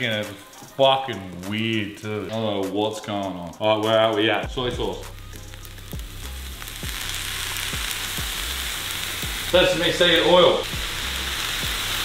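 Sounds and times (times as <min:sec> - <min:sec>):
food sizzling in a frying pan: 0:04.7 - 0:12.0.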